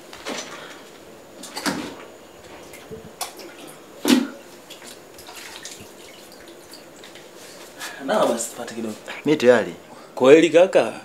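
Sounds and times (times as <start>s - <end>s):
water splashing and dripping: 2.7s - 7.4s.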